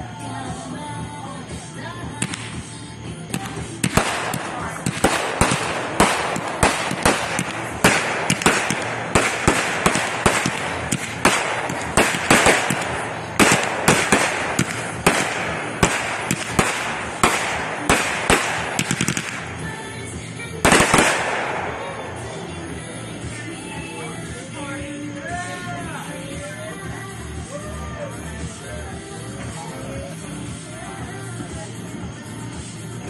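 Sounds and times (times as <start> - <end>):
fireworks bangs and crackles: 1.6 - 27.6.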